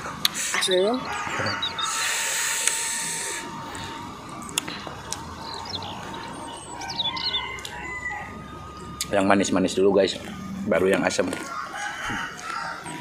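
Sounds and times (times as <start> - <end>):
faint steady tone: 0.0 - 11.6
birds chirping: 0.0 - 13.0.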